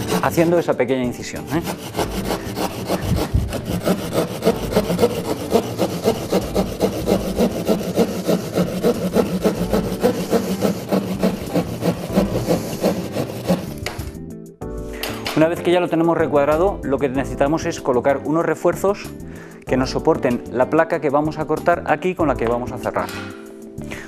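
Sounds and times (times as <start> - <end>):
hand saw cutting plasterboard: 0.0 - 14.2.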